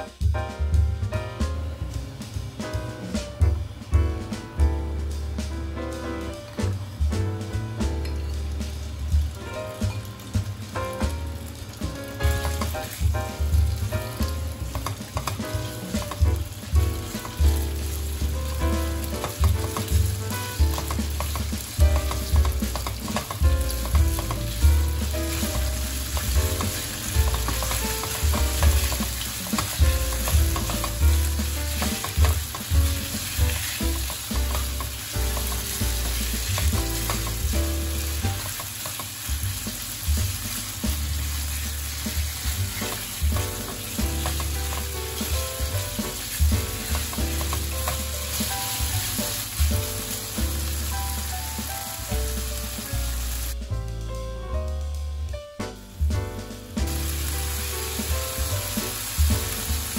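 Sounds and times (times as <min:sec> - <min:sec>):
meat sizzling in frying pan: 0:07.8 - 0:53.6, 0:56.7 - 0:59.9
spatula scraping and tapping pan: 0:11.9 - 0:13.1, 0:14.2 - 0:16.4, 0:17.0 - 0:49.7.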